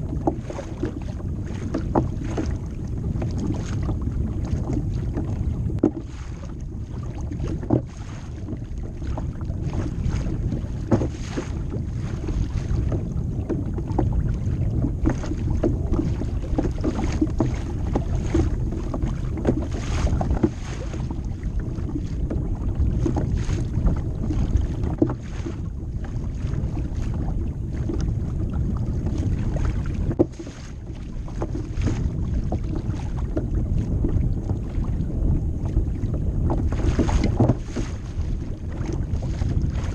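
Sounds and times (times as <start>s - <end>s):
water rumbling against hull: 0.0s - 39.9s
waves slapping: 0.0s - 39.9s
wind buffeting microphone: 0.0s - 39.9s.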